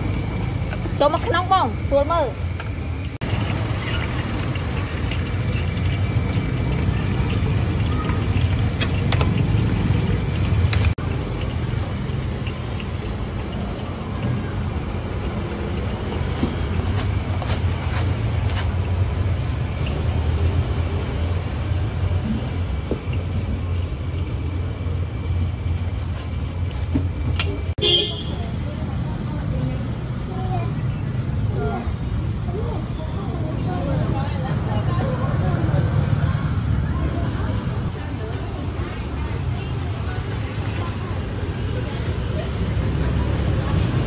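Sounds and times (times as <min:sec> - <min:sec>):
utensils clicking and knocking: 0:08.1 - 0:13.1.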